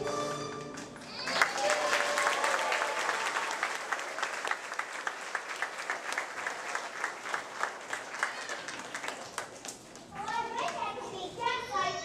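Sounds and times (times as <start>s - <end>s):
audience applauding: 0.6s - 9.8s.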